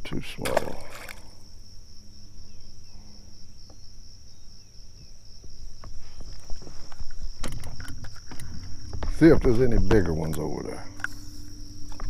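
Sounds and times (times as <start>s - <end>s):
insect chorus: 0.0s - 12.0s.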